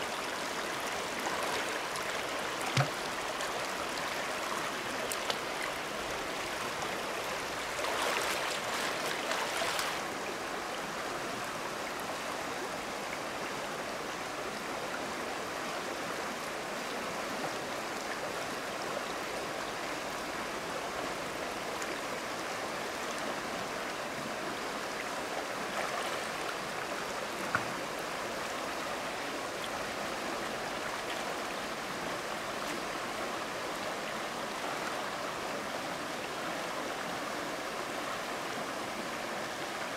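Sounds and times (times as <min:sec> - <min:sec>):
river flowing over rocks: 0:00.0 - 0:39.9
splashing in water: 0:02.7 - 0:03.1.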